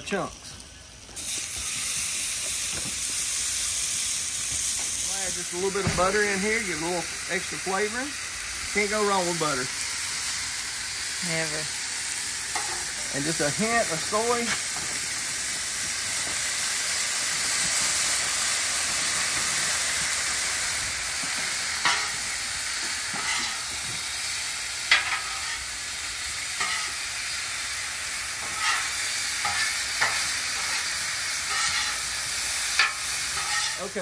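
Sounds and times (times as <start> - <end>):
steak sizzling on a griddle: 0.0 - 34.0
metal spatula scraping griddle: 12.5 - 12.9, 21.8 - 22.2, 23.1 - 23.7, 24.9 - 25.6, 26.6 - 27.0, 28.4 - 32.1, 32.8 - 34.0.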